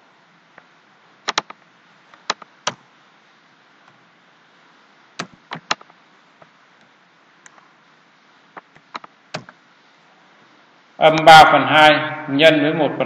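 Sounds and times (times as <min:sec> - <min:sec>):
faint steady hiss: 0:00.0 - 0:13.0
keyboard keys clicking: 0:01.3 - 0:01.6.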